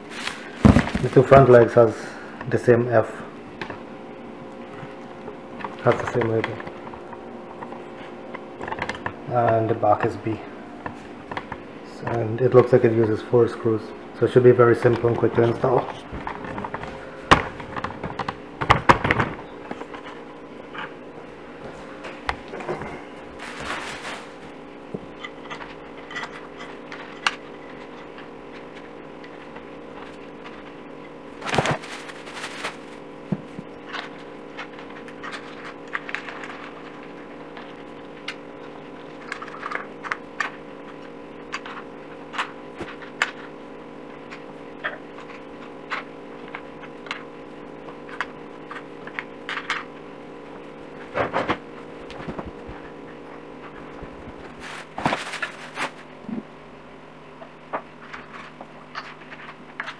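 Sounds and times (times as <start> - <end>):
handling noises: 0.0 - 1.9, 14.8 - 43.6, 50.9 - 56.3
steady hum: 0.0 - 59.9
plastic wrap crinkling: 22.4 - 24.6, 31.4 - 38.3, 54.1 - 56.1.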